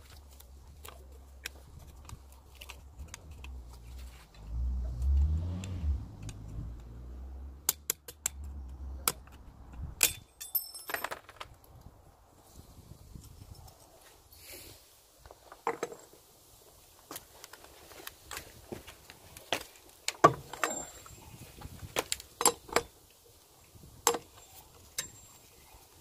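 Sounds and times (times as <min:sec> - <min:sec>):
metallic clinks: 0:10.0 - 0:11.3, 0:20.4 - 0:21.6, 0:24.1 - 0:25.8.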